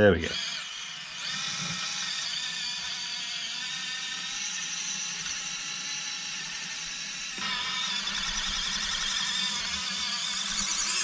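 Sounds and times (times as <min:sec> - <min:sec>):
small gear motor whirring: 0:00.3 - 0:11.0.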